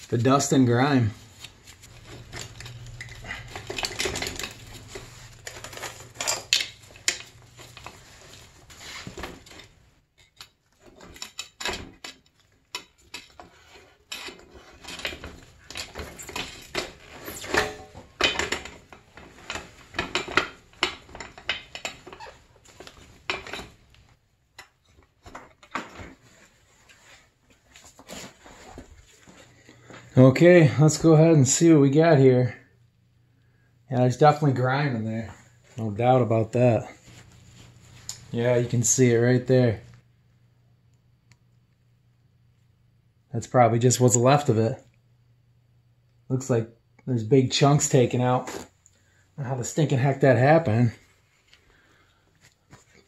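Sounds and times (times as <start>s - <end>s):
metallic clinks and rattles of tools: 1.8s - 8.4s.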